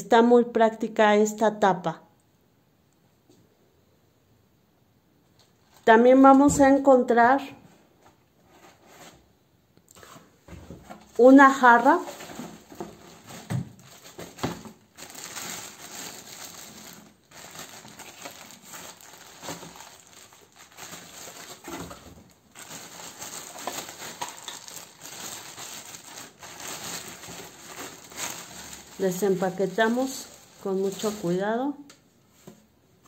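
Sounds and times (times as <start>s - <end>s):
plastic packaging crinkling: 11.1s - 31.6s.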